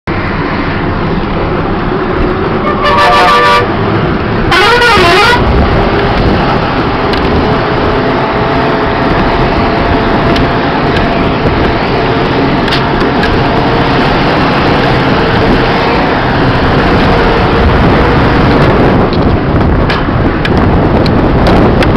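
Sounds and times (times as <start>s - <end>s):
bus engine and road noise: 0.0s - 21.9s
horn blasts: 2.6s - 3.8s, 4.5s - 5.6s.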